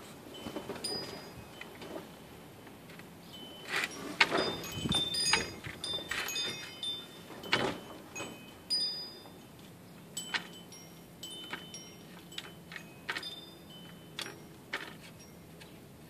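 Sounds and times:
short high ringing tones: 0:03.3 - 0:09.5.

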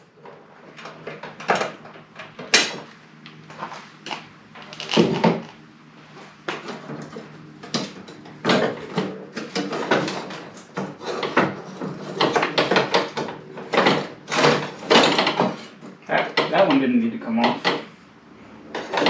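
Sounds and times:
clunks and rattles on sheet steel: 0:06.6 - 0:16.8.

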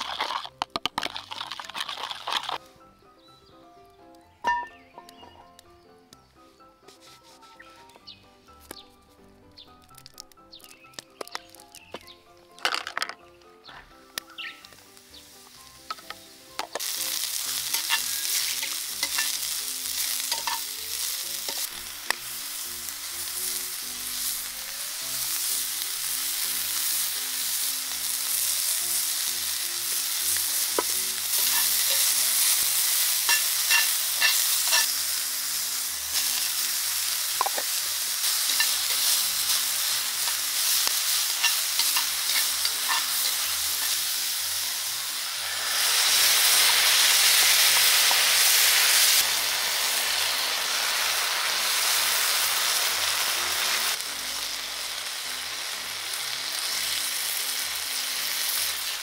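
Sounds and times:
food sizzling in hot oil: 0:00.0 - 0:02.6, 0:14.2 - 0:59.0
utensils clicking on pan: 0:15.8 - 0:22.2, 0:30.2 - 0:35.0, 0:37.3 - 0:44.2.

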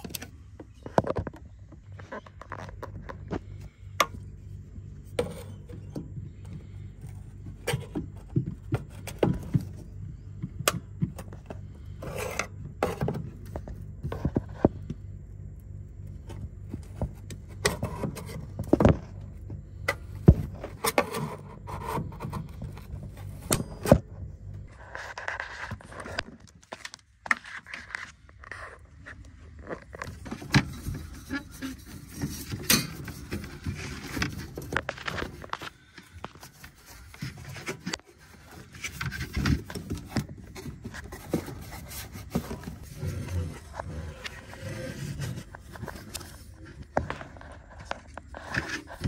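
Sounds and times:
low hum: 0:00.0 - 0:26.2
plastic connectors handled: 0:29.6 - 0:42.8.

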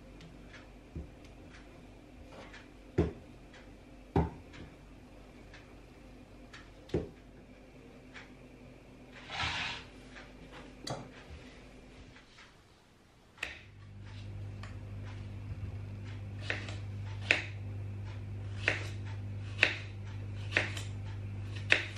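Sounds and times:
low steady hum: 0:00.0 - 0:21.9
brief scraping hiss: 0:09.3 - 0:09.9.

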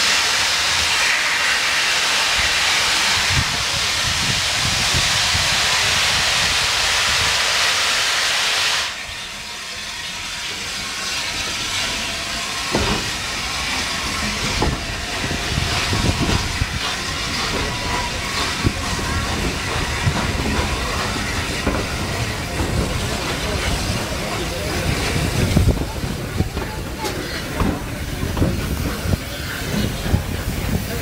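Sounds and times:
steam locomotive hissing: 0:00.0 - 0:31.0
train rumbling: 0:00.0 - 0:31.0
coaches clanking: 0:12.6 - 0:31.0.

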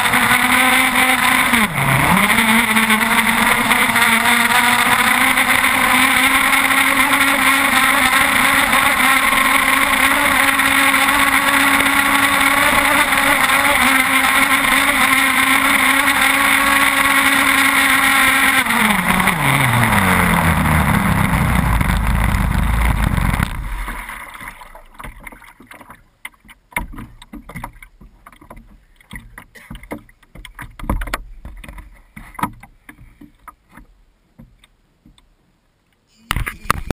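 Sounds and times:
water slapping: 0:00.0 - 0:33.9
two-stroke boat engine: 0:00.0 - 0:34.6
knocks against hull: 0:23.4 - 0:35.2.

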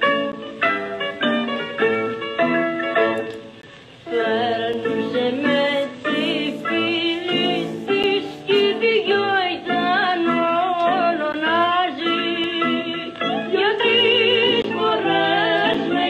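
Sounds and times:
string accompaniment: 0:00.0 - 0:16.0
singer with strong vibrato: 0:04.1 - 0:13.0.

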